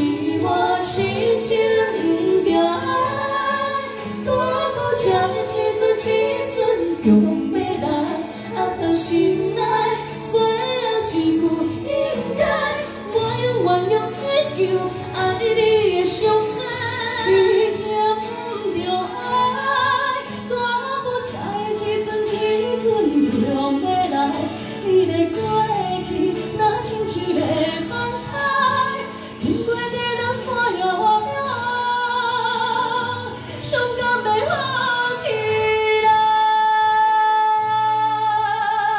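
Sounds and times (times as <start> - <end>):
musical accompaniment: 0.0 - 38.9
women singing pop ballad: 0.0 - 38.9.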